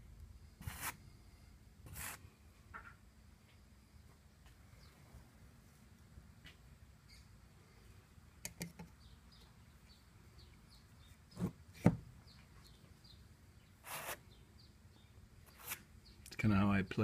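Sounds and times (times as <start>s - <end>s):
faint bird chirps: 7.0s - 7.8s.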